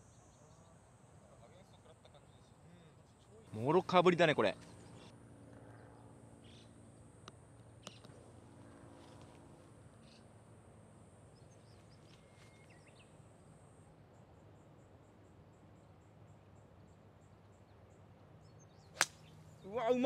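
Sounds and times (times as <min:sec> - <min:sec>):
faint bird chirps: 0:05.7 - 0:06.8, 0:11.3 - 0:13.2.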